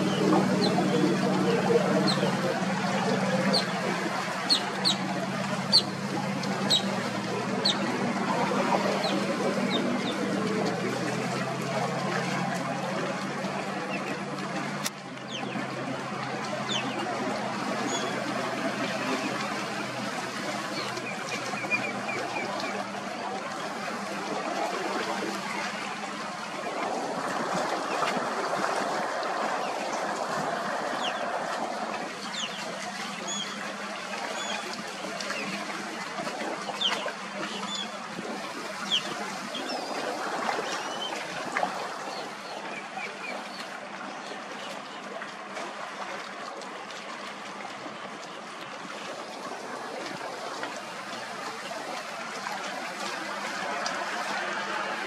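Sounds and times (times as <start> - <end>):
birds chirping: 0.0 - 10.7, 15.2 - 15.7, 16.3 - 19.5, 32.2 - 33.6
water lapping: 0.0 - 55.0.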